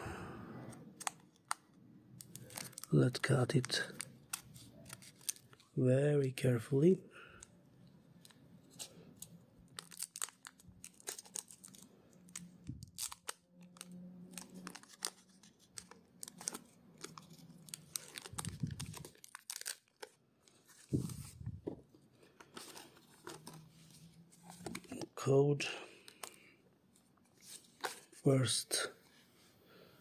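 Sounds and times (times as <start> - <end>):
foil wrapper crinkling and tearing: 2.2 - 5.7, 9.7 - 20.2
dull handling sounds: 20.5 - 25.3.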